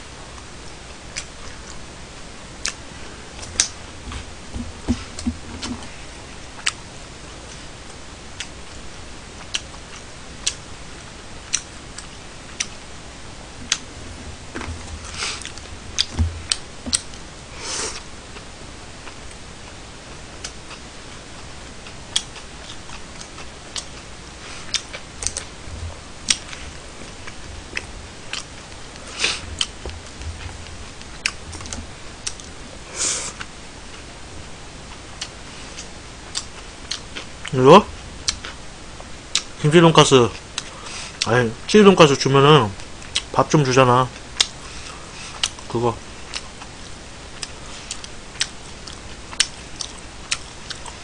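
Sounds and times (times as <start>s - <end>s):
breathy eating noises: 13.6s - 19.8s, 20.4s - 33.5s, 44.4s - 51.0s.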